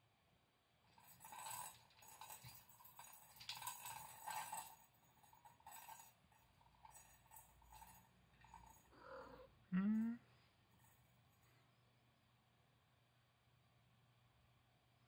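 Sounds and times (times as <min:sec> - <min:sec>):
tumbler toy ball rattling: 0:00.9 - 0:09.0.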